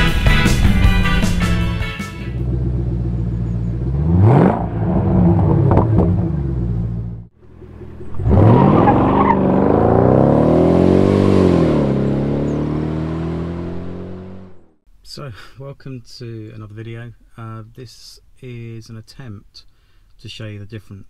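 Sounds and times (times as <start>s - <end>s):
car engine revving: 2.3s - 14.8s
car accelerating past: 2.4s - 14.7s.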